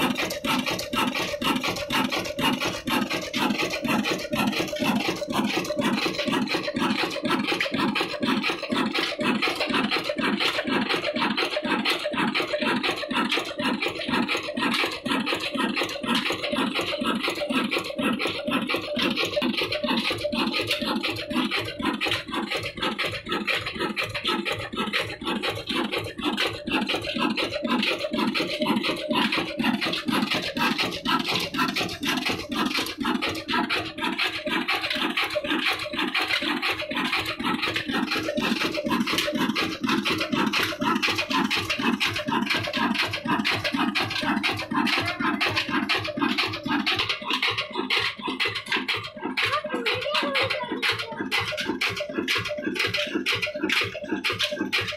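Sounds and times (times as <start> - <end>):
diesel engine running: 0.0 - 54.9.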